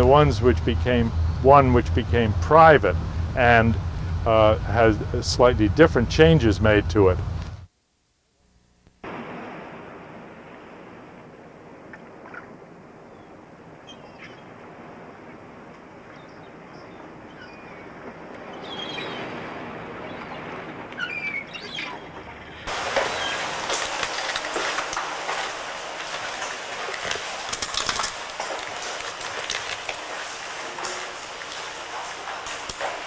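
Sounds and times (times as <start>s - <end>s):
wind or surf rushing: 0.0s - 7.6s, 9.0s - 13.8s, 14.4s - 21.1s
loud rushing noise: 0.0s - 7.7s
bird chirps: 18.5s - 19.2s, 21.0s - 22.1s.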